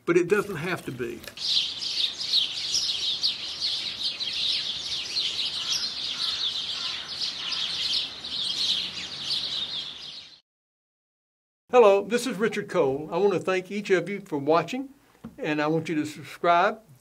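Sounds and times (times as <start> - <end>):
songbirds chirping: 0.0 - 10.4.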